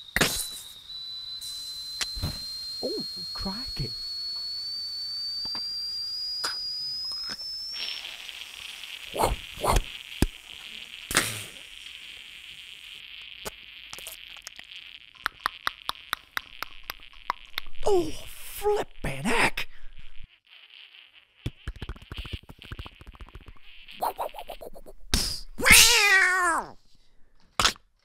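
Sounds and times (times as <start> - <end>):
mouth whistle rising in pitch: 0.0 - 8.2
mouth-made sizzling hiss: 0.0 - 26.8
mouth clicks and pops: 6.4 - 8.2, 9.1 - 10.4, 13.4 - 17.9, 21.4 - 25.5, 27.5 - 27.9.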